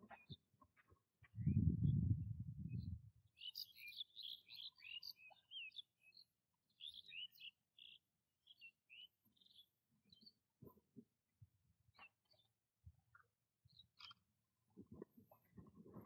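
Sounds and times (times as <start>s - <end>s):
small birds chirping: 0.0s - 10.8s, 11.9s - 14.3s
low dull rumble: 1.4s - 3.2s.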